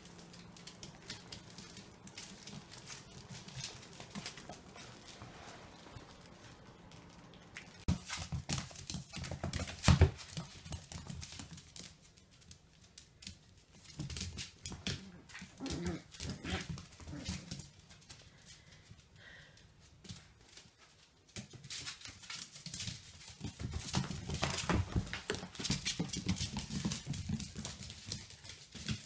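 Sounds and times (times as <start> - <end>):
puppy claws clicking on tile: 0.0 - 5.3, 6.0 - 19.0.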